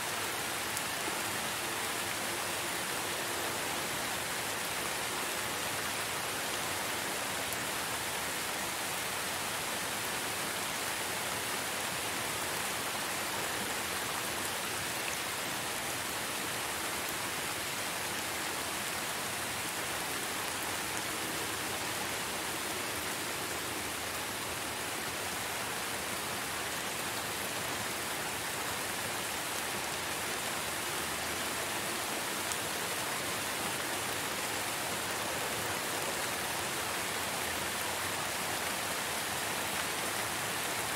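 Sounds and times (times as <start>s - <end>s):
steady rainfall: 0.0s - 40.9s.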